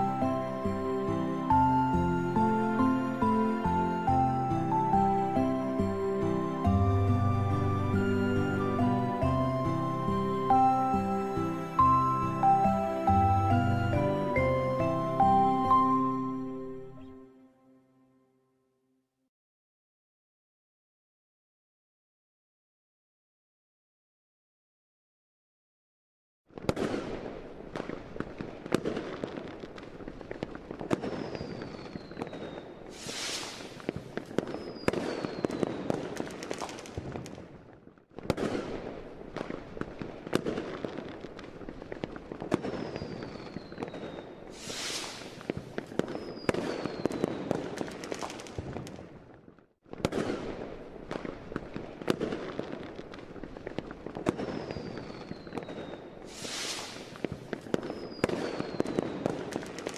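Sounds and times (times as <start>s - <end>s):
fireworks crackling and popping: 26.5s - 59.9s
firework bursts: 26.6s - 59.9s
firework whistles falling in pitch: 31.0s - 36.0s, 42.6s - 48.2s, 54.3s - 59.9s.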